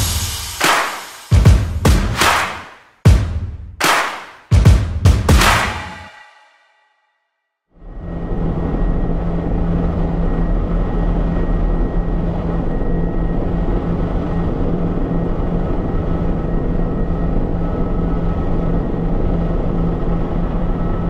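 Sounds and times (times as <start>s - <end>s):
helicopter turbine and rotor noise: 7.8s - 21.0s.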